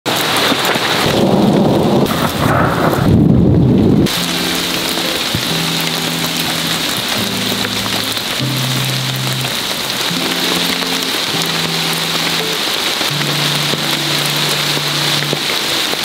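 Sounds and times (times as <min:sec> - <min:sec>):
heavy rain: 0:00.1 - 0:16.0
rolling thunder: 0:00.8 - 0:05.5
soft music of low notes: 0:04.0 - 0:16.0.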